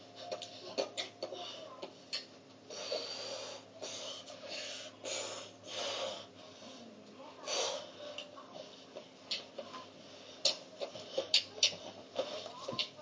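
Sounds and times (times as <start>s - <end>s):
person breathing hard: 2.7s - 8.1s.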